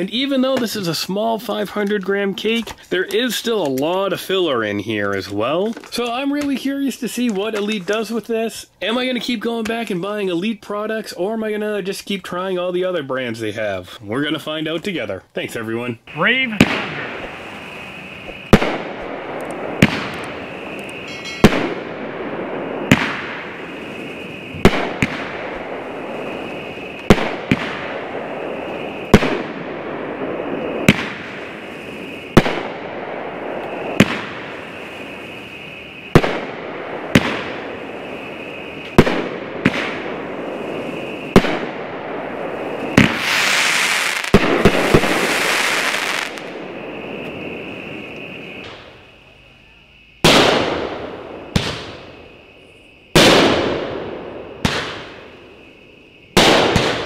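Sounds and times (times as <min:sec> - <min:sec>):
firework crackle: 0:00.0 - 0:15.0, 0:16.1 - 0:57.0
firework bangs: 0:16.1 - 0:49.2, 0:50.2 - 0:57.0.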